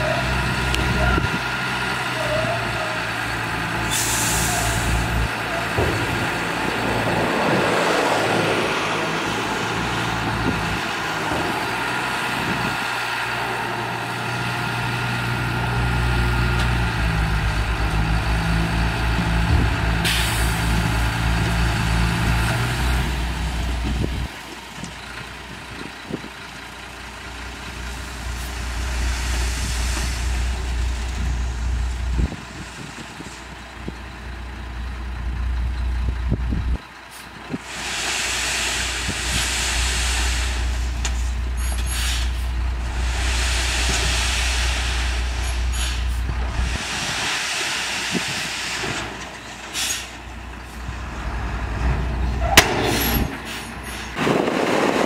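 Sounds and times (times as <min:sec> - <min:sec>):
diesel truck engine running hard: 0:00.0 - 0:55.0
soil spilling out: 0:27.6 - 0:31.9, 0:37.6 - 0:50.2.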